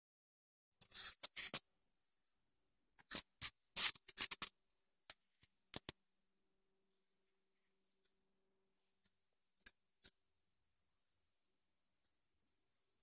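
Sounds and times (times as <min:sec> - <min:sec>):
scratchy rustling noises: 0:00.8 - 0:01.7, 0:03.0 - 0:04.6.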